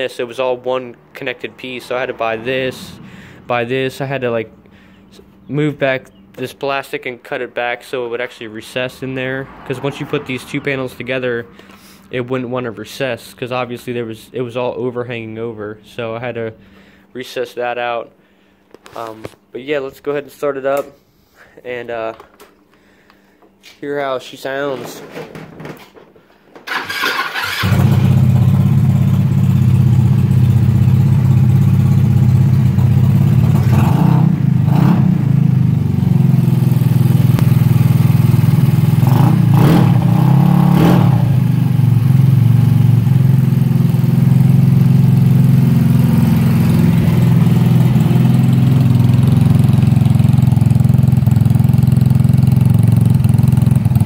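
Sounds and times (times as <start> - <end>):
scooter engine starting and idling: 26.6 - 54.0.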